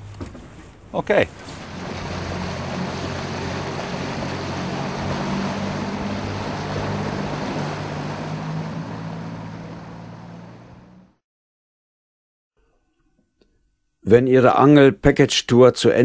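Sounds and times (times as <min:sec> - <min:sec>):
outboard motor humming: 0:00.0 - 0:11.2
wind: 0:00.0 - 0:11.2
water rushing: 0:00.9 - 0:11.2.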